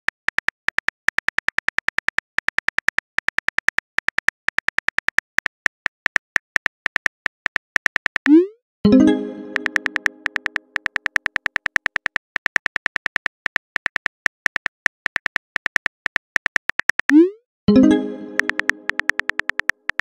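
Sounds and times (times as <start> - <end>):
phone keyboard clicks: 0.0 - 8.3, 9.5 - 17.2, 18.1 - 20.0
plucked note ringing: 8.9 - 10.6, 17.7 - 19.4.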